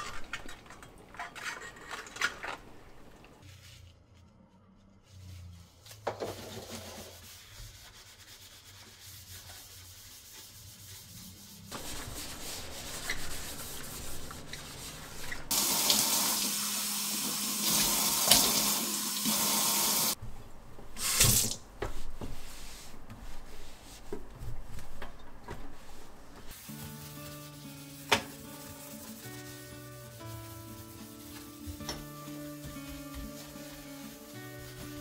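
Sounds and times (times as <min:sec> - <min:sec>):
cloth scrubbing sink: 0:05.2 - 0:20.2, 0:21.0 - 0:35.0
faucet water running into sink: 0:15.5 - 0:20.2.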